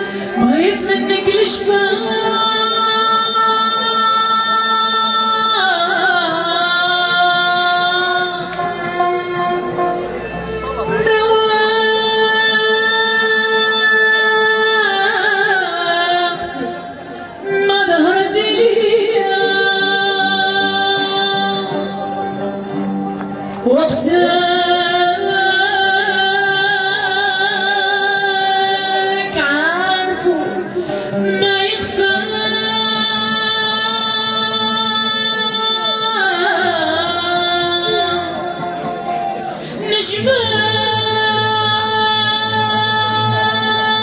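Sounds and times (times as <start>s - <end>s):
woman singing: 0.0s - 9.7s, 10.8s - 44.0s
low musical accompaniment: 5.4s - 13.3s.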